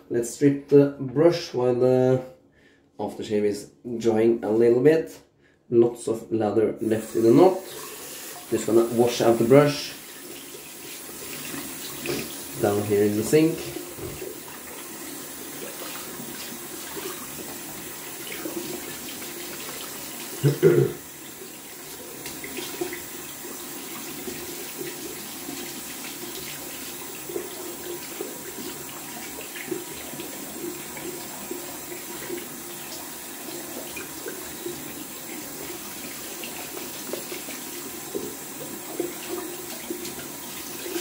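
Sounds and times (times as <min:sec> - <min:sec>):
tap running into sink: 0:11.2 - 0:12.6, 0:13.6 - 0:14.6, 0:35.6 - 0:41.0.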